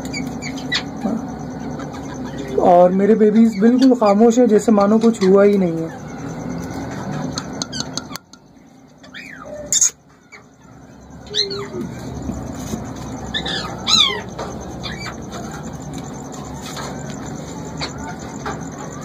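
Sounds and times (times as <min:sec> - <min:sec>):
parrot calls: 0:00.0 - 0:02.7, 0:08.9 - 0:19.0
steady background noise: 0:00.0 - 0:19.0.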